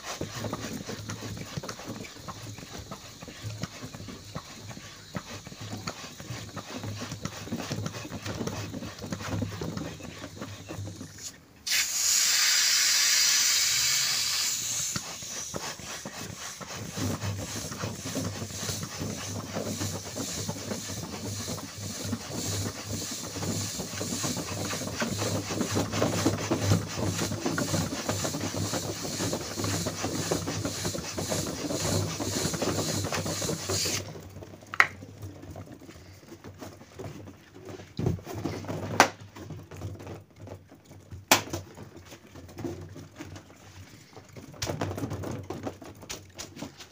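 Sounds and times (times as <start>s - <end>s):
balloon pump air rush: 0.0s - 34.2s.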